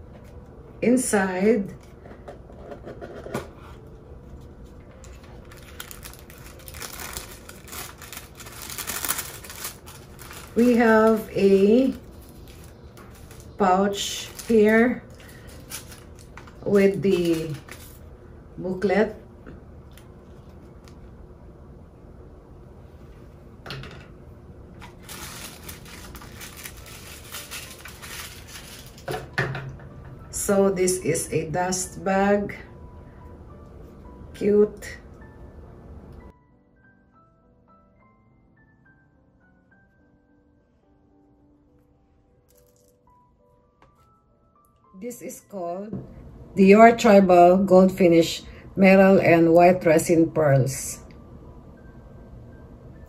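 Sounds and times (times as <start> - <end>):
paper rustling and crinkling: 3.5 - 18.0, 24.8 - 29.2.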